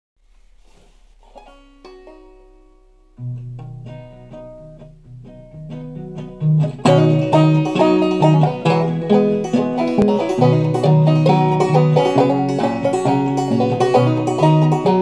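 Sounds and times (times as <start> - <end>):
banjo picking and strumming: 0.4 - 15.0
guitar bass notes: 1.3 - 15.0.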